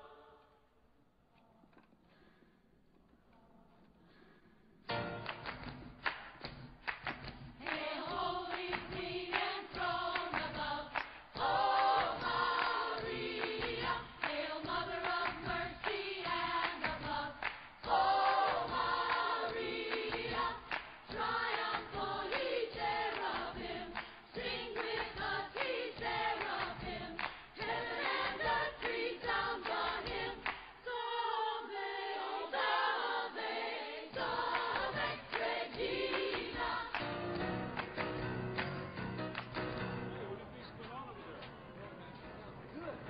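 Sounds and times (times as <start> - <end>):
choir-like singing: 0.0 - 0.8, 7.6 - 37.8.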